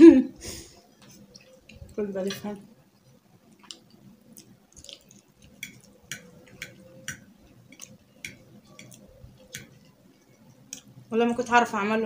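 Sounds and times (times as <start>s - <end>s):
soft chewing: 0.8s - 11.1s
forks clicking on plates: 5.6s - 9.8s.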